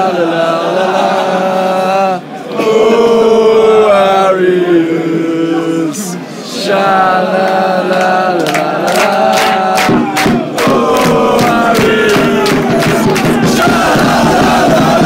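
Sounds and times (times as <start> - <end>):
crowd chanting: 0.0 - 15.0
hand-clapping: 7.4 - 13.8.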